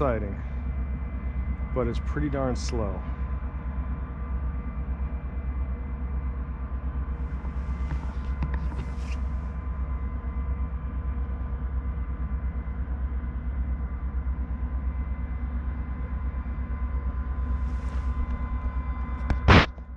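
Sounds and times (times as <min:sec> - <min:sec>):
boat diesel engines rumbling: 0:00.0 - 0:03.6
faint steady tones: 0:00.0 - 0:19.9.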